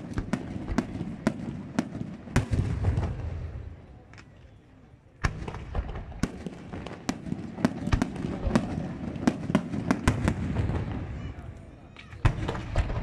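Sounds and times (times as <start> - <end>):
fireworks bangs and pops: 0.0 - 4.5, 5.2 - 13.0.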